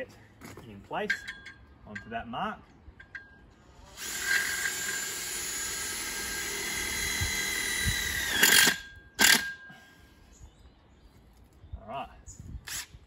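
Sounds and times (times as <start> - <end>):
cordless drill driving screw: 3.8 - 9.5, 12.7 - 12.9.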